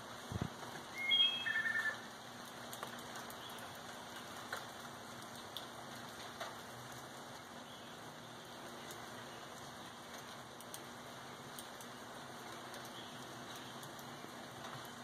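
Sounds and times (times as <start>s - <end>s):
steady rain falling: 0.0s - 15.0s
bird chirping: 0.9s - 2.1s
water drips: 0.9s - 15.0s.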